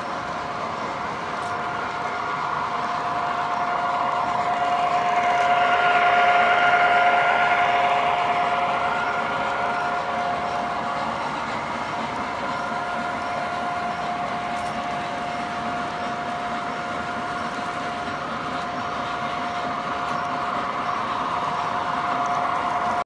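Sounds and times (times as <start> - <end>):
model train motor whine: 0.0 - 23.0
model train rolling along track: 0.0 - 23.0.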